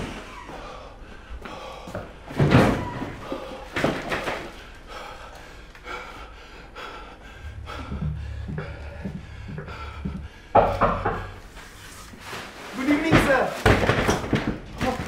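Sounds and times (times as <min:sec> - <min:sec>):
low drone: 0:04.8 - 0:11.9.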